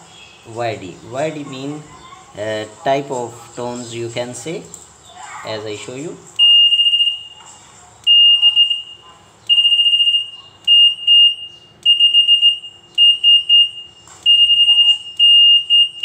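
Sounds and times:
high-pitched alarm beeps: 6.4s - 7.4s, 8.1s - 16.0s.

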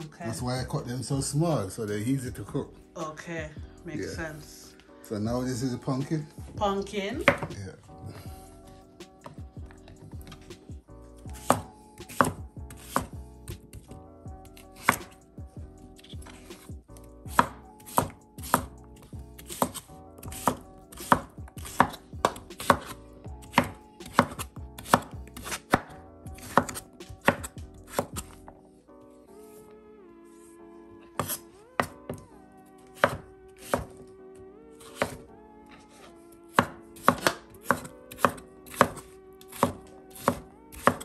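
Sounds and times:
knife chopping on wooden board: 7.2s - 7.6s, 11.2s - 15.2s, 17.3s - 28.4s, 31.1s - 34.0s, 34.8s - 41.0s.

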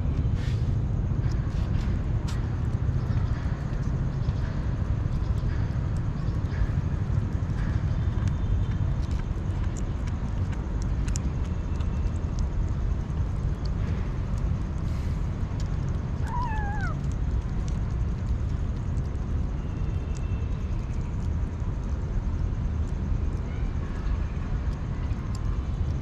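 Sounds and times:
kitten meowing: 16.2s - 17.0s.

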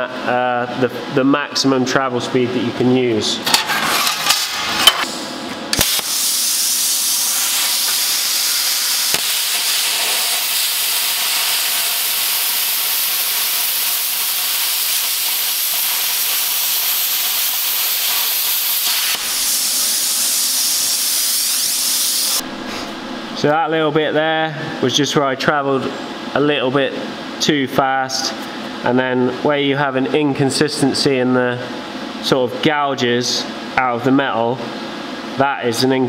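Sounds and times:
plasma cutter hissing: 5.7s - 22.7s.

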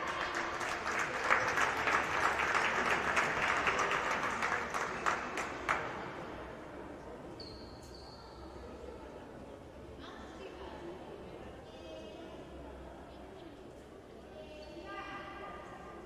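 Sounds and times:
hands clapping in applause: 0.0s - 6.1s.

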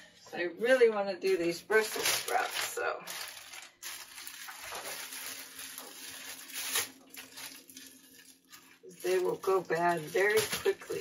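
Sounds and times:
plastic bag rustling and crinkling: 0.6s - 11.0s.

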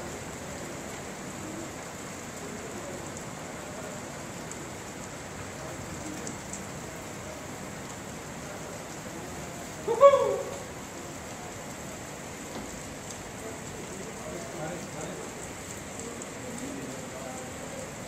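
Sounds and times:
rain on pavement and cars: 0.0s - 18.0s
raindrop ticks: 2.2s - 7.0s, 10.5s - 18.0s.

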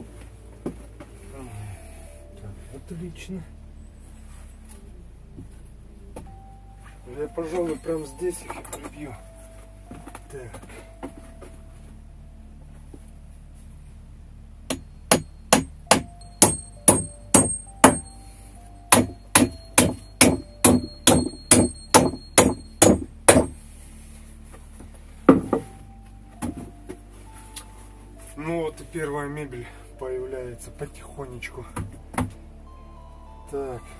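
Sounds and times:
hammer driving nails into wood: 15.1s - 18.1s, 18.9s - 23.6s.

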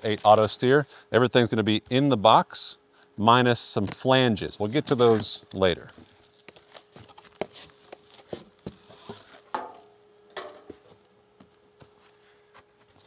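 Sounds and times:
faint steady hum: 0.0s - 13.0s
cardboard scraping rustles: 4.6s - 10.1s.

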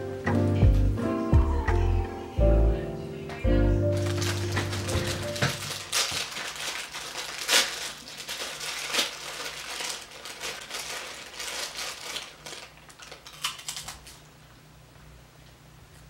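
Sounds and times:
cracker crunching: 4.0s - 14.3s
plastic wrapper tearing and rustling: 4.0s - 14.3s.

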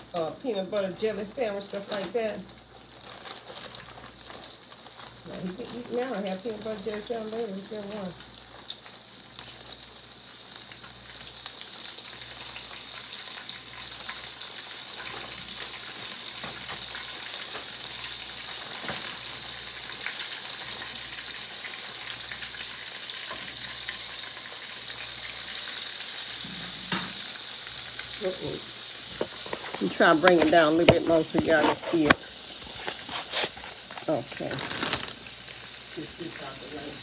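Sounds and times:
chicken sizzling in hot oil: 0.0s - 37.0s
plastic bag crinkling: 29.1s - 35.7s.

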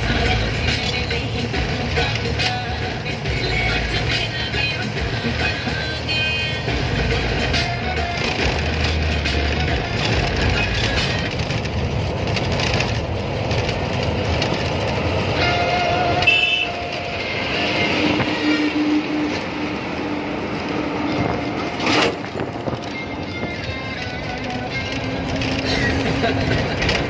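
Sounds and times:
truck engine and road noise: 0.0s - 27.0s
truck horn: 5.2s - 8.3s, 15.1s - 26.1s.

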